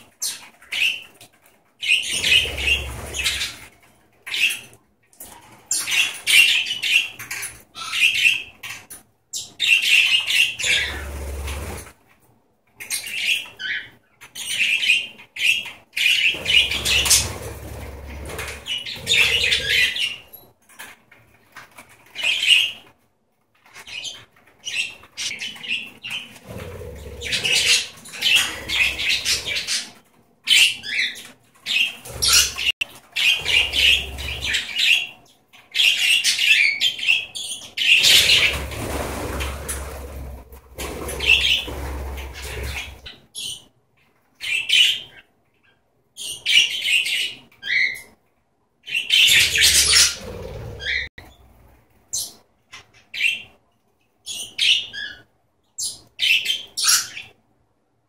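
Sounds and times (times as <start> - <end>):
birds flapping wings: 38.1 - 43.0
budgerigars chattering: 48.9 - 51.1.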